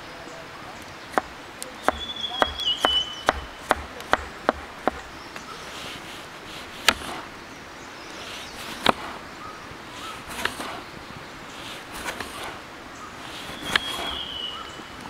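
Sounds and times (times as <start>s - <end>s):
knife chopping on wooden board: 1.1s - 5.2s, 6.8s - 7.2s, 8.7s - 9.2s, 10.3s - 10.8s, 13.4s - 14.3s.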